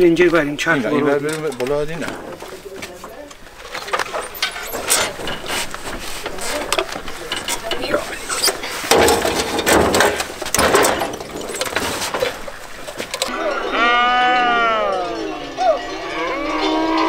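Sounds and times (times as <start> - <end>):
motorcycle clanking and rattling: 0.0 - 13.4
metal knocking against metal: 3.1 - 13.3.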